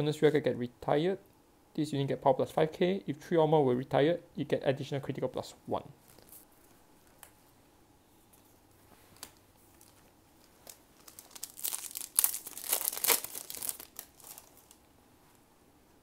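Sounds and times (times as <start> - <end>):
wrapper being torn and crinkled: 9.2 - 14.9.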